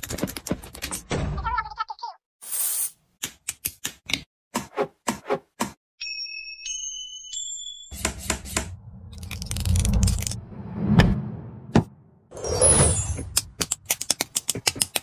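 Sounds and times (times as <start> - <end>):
rumbling whoosh with sharp hit: 8.7 - 12.1.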